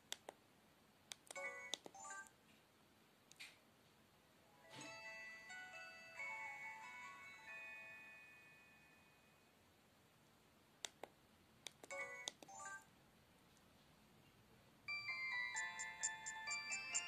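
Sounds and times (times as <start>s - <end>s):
polyphonic phone jingle: 14.9s - 17.0s.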